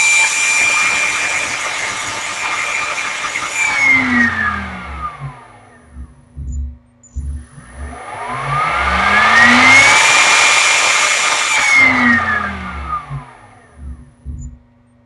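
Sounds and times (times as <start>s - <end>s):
spindle motor whining: 0.0s - 14.6s
low thumps: 4.0s - 10.0s, 11.9s - 14.9s.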